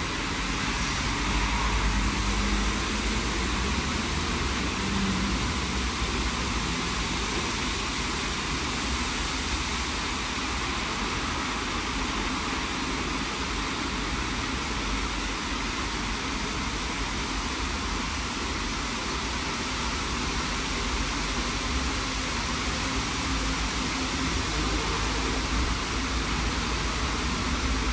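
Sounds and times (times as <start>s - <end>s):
high-pressure water jets spraying: 0.0s - 27.9s.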